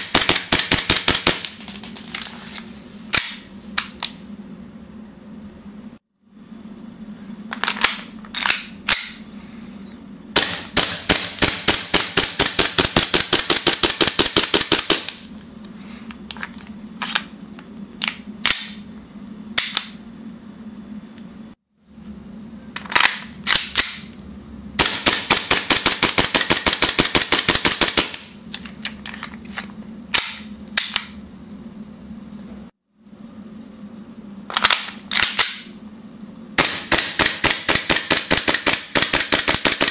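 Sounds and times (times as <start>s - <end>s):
airsoft pistol shots: 10.4s - 15.1s, 24.8s - 28.2s, 36.6s - 39.9s.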